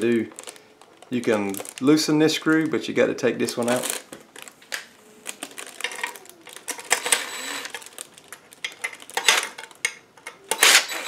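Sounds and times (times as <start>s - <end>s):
plastic packaging rustling: 0.0s - 11.0s
cordless drill whirring: 6.9s - 7.8s, 10.5s - 11.0s.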